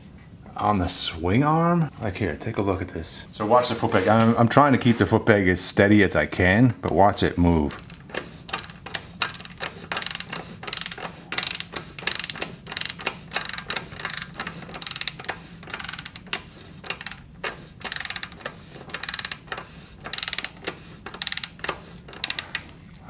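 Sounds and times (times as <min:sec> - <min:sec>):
ratchet wrench clicking: 0:07.8 - 0:17.2, 0:17.8 - 0:19.5, 0:20.1 - 0:22.7.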